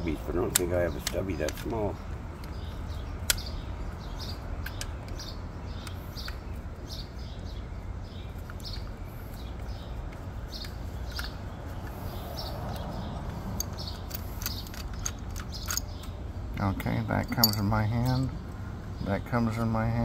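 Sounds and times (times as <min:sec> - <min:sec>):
low outdoor rumble: 0:00.0 - 0:20.0
small bird chirping: 0:00.6 - 0:19.7
sharp click: 0:03.2 - 0:03.5.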